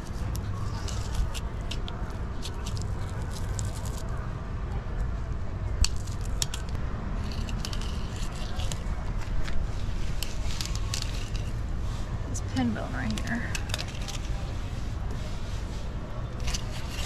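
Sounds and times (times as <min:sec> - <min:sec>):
small clicks and crackles: 0:00.0 - 0:04.3, 0:05.8 - 0:11.7, 0:13.0 - 0:14.8, 0:16.3 - 0:17.0.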